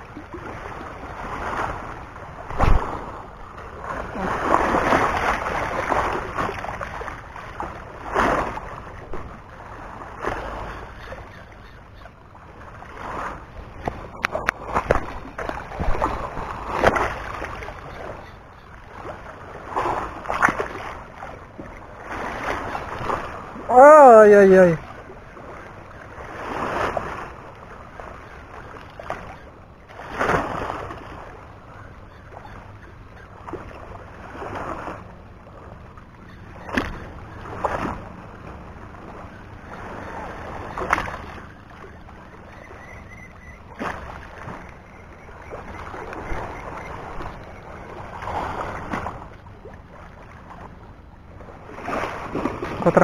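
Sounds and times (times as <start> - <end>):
small waves lapping: 0.0 - 53.0.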